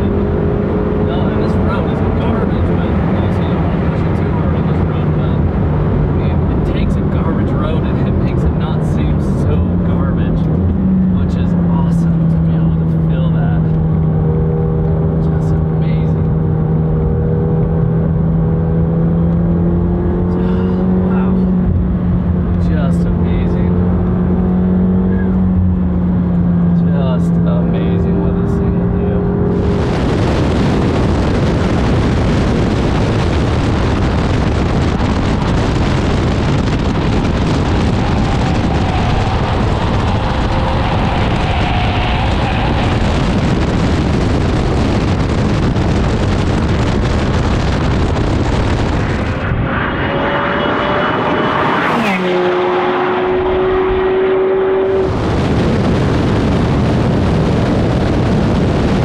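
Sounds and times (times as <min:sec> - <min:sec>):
car engine at speed: 0:00.0 - 0:59.0
road noise: 0:00.0 - 0:59.0
wind noise: 0:29.1 - 0:59.0.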